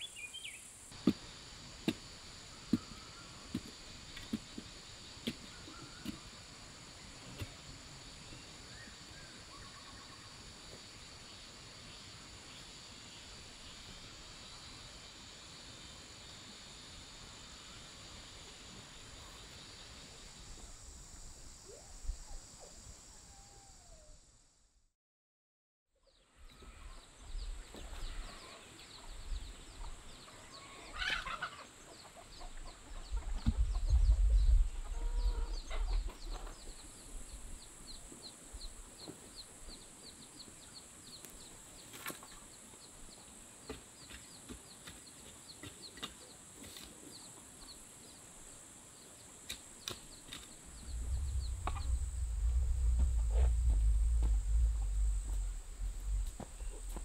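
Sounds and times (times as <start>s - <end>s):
insects droning: 0.0s - 24.6s, 26.4s - 57.0s
chickens clucking: 29.8s - 36.5s
low rumble: 50.6s - 57.0s.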